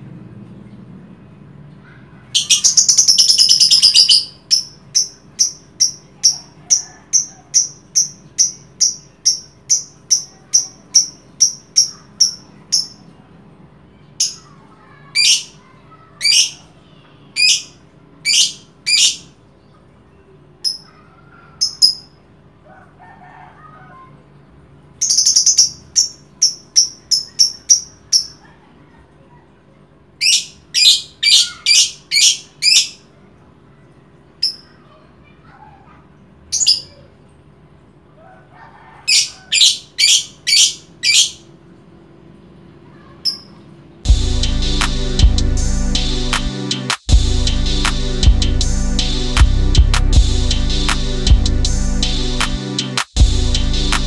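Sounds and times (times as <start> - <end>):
lovebird screeching and chirping: 2.3 - 13.0, 15.2 - 15.6, 16.2 - 16.7, 17.4 - 19.3, 21.6 - 22.2, 30.2 - 33.0, 36.5 - 37.0, 38.8 - 41.5.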